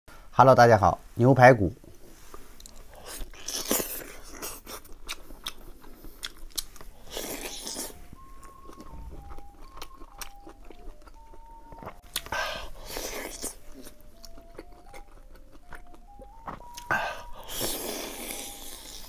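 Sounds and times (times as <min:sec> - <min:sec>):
person chewing meat: 0:01.9 - 0:19.0.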